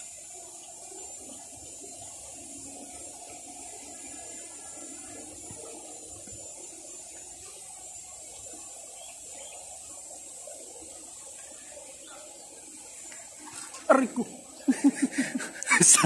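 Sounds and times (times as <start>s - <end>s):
high-pitched hiss: 0.0s - 16.0s.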